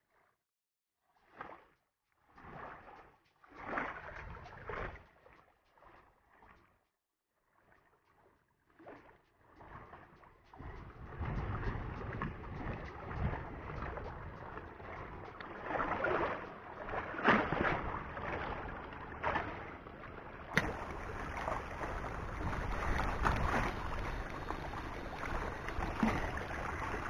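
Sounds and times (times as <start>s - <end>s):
wind buffeting microphone: 10.6s - 19.1s, 20.5s - 27.0s
small waves washing against rocks: 20.6s - 27.0s.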